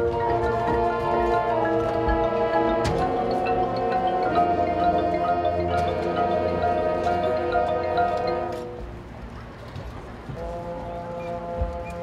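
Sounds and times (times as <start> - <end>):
marching band playing chords: 0.0 - 9.0.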